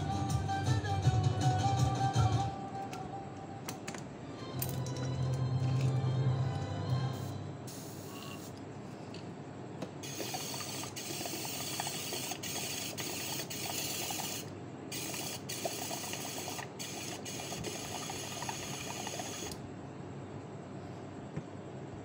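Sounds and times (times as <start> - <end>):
airbrush hissing: 7.2 - 8.6, 10.0 - 19.6.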